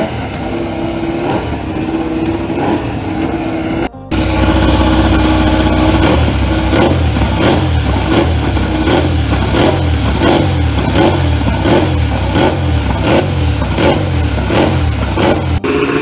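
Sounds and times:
motorcycle engine fast idle: 0:04.1 - 0:16.0.

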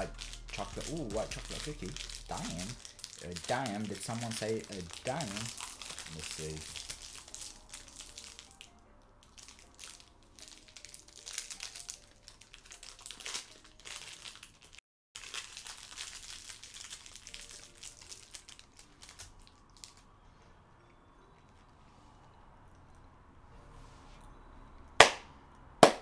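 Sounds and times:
plastic wrapper crinkling: 0:00.0 - 0:20.4.

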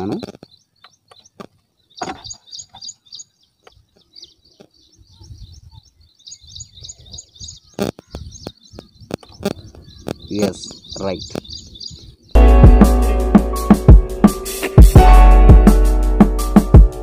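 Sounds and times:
small bird chirping rapidly: 0:00.0 - 0:12.4.

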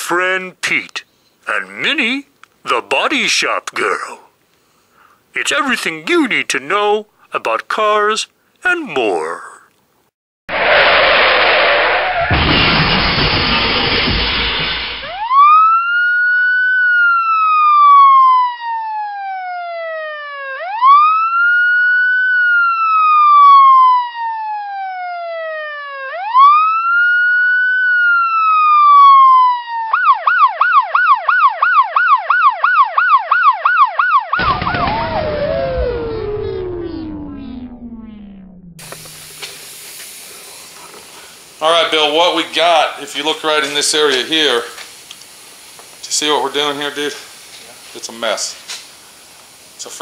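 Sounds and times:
burst of noise: 0:10.5 - 0:15.3, 0:34.4 - 0:50.0
electronic siren wailing and yelping: 0:15.0 - 0:39.4.

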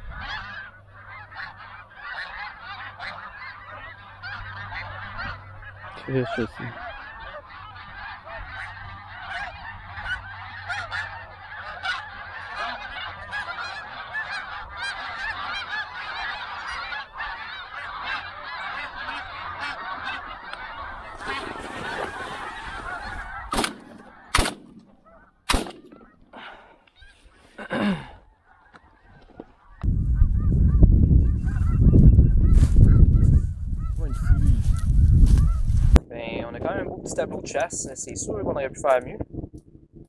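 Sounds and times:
geese calling: 0:00.0 - 0:39.1
shotgun shots: 0:23.5 - 0:26.3.

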